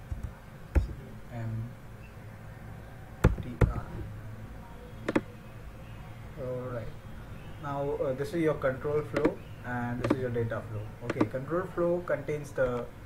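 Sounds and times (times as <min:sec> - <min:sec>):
computer keyboard key clicks: 0:11.1 - 0:11.4.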